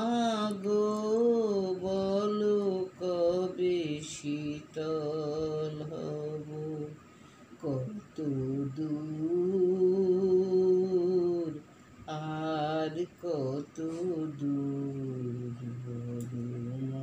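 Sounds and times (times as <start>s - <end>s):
person singing long held notes: 7.6s - 17.0s.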